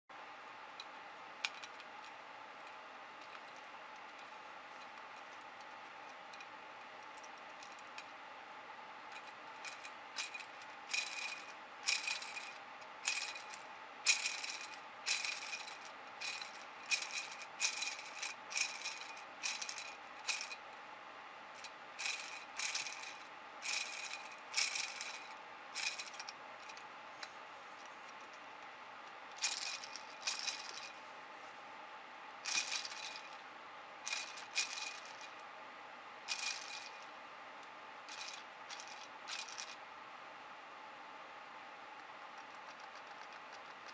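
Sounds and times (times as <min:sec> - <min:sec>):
plastic gear teeth rattling: 0:29.4 - 0:30.9.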